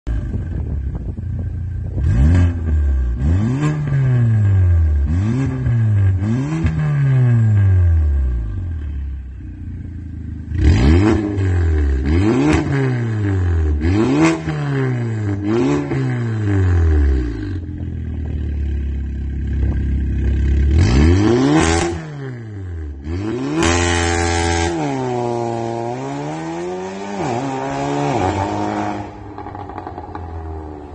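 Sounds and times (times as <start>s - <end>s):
car engine revving: 0.2s - 30.9s
exhaust cracks: 17.6s - 22.0s, 28.2s - 30.9s.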